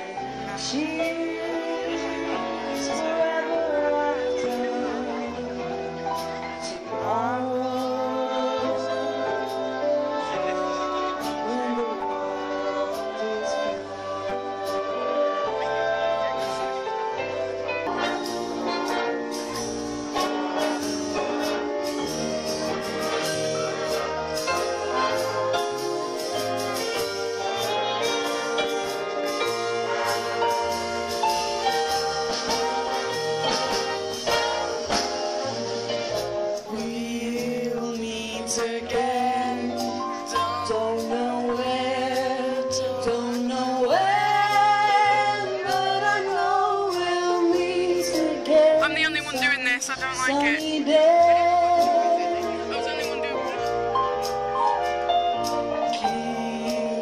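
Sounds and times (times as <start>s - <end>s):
person singing: 0.0s - 14.7s, 36.6s - 53.2s, 55.8s - 57.0s
big band dance music with brass: 0.0s - 57.0s.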